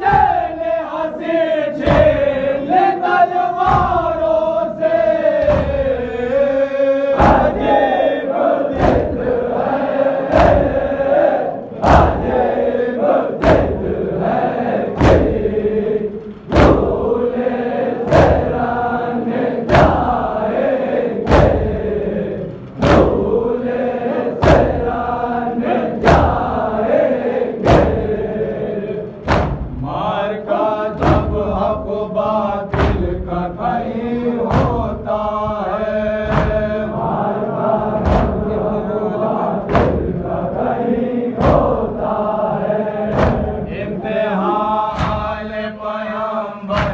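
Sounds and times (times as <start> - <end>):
group chanting a lament: 0.0 - 46.9
chest-beating thumps: 1.8 - 2.5, 3.6 - 6.4, 7.1 - 8.0, 8.7 - 17.2, 18.0 - 20.3, 21.2 - 23.5, 24.4 - 25.2, 27.6 - 28.5, 29.1 - 30.0, 30.9 - 33.5, 34.4 - 37.2, 37.8 - 38.9, 39.6 - 40.4, 43.0 - 45.6, 46.7 - 46.9.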